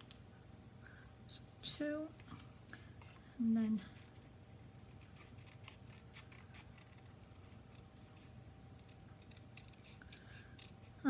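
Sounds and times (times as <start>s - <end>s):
low room hum: 0.0s - 11.0s
small scissors snipping paper: 4.9s - 11.0s.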